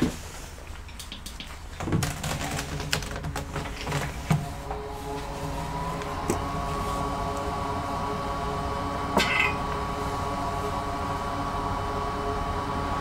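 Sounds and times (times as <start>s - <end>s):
bench equipment humming: 3.3s - 13.0s
faint steady whine: 3.9s - 13.0s.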